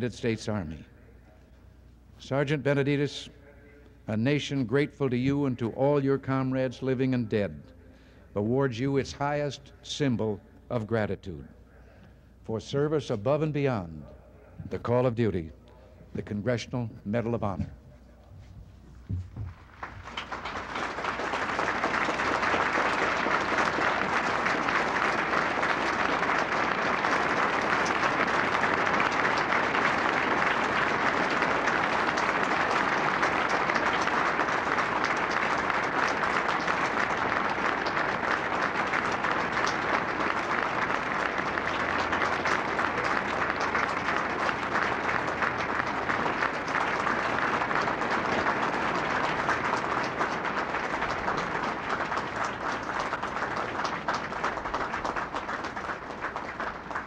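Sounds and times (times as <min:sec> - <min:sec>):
audience applauding: 0:19.4 - 0:57.0.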